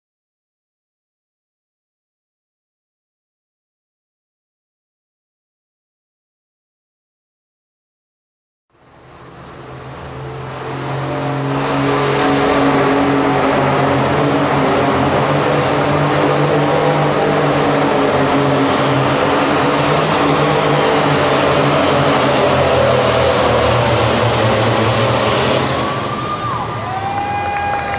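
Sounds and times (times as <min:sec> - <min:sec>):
diesel tractor engine under load: 0:08.8 - 0:27.1
high turbo whistle: 0:08.9 - 0:27.9.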